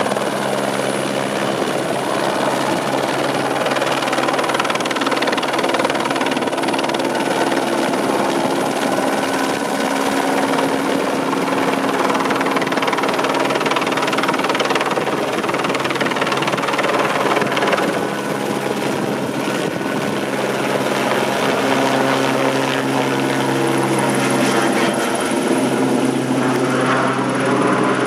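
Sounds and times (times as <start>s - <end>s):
helicopter rotor and turbine noise: 0.0s - 28.0s.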